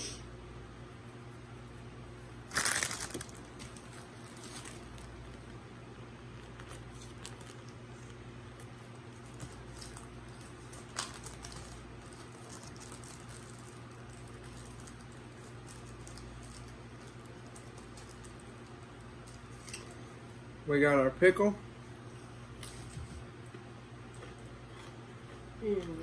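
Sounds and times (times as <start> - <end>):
steady low hum: 0.0 - 26.0
plastic wrapper crinkling: 2.5 - 5.5, 6.4 - 7.8, 9.2 - 18.4.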